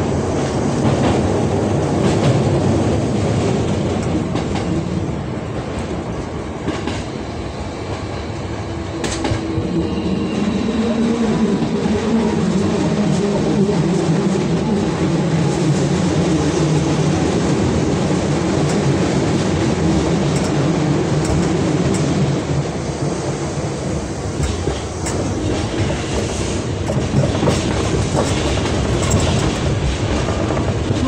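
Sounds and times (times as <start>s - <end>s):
train wheels rumbling on rail: 0.0s - 31.0s
wheels clacking over rail joints: 23.7s - 31.0s.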